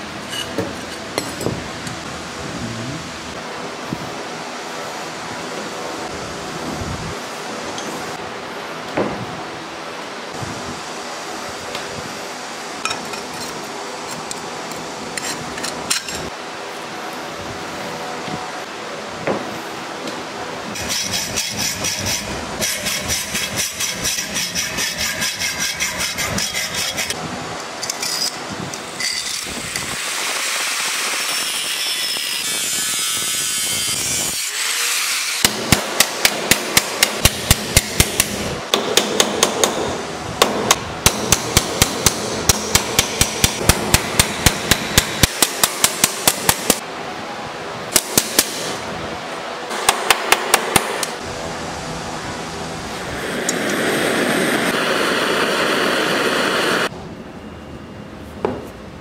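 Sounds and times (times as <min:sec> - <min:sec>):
hacksaw sawing copper pipe: 0:20.8 - 0:27.2
hammer striking metal: 0:35.4 - 0:46.8.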